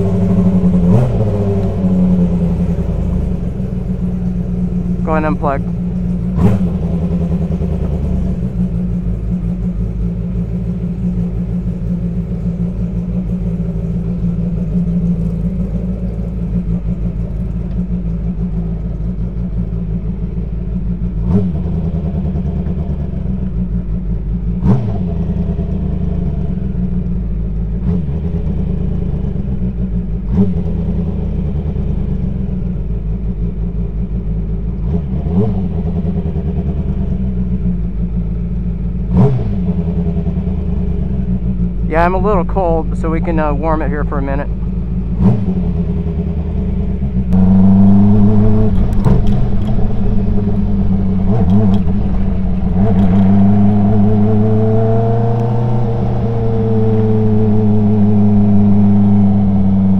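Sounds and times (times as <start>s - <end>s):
engine idling: 0.0s - 59.9s
sharp clicks: 51.2s - 53.4s.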